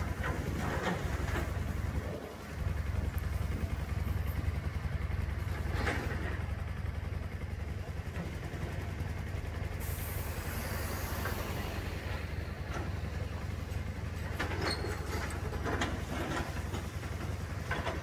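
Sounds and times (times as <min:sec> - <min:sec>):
excavator diesel engine rumbling: 0:00.0 - 0:18.0
hydraulic hiss: 0:09.8 - 0:12.7.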